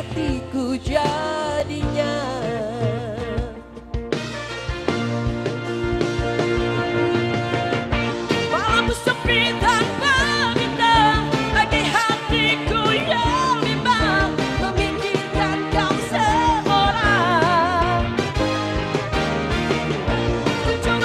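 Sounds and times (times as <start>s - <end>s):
woman singing into microphone: 0.0s - 3.8s, 8.5s - 18.1s, 20.4s - 21.0s
live band playing: 0.0s - 21.0s.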